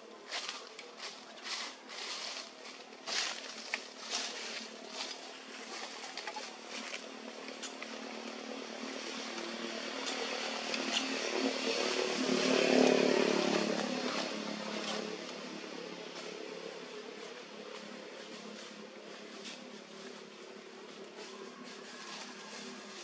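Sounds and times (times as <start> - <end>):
small petrol engine running: 6.8 - 15.4.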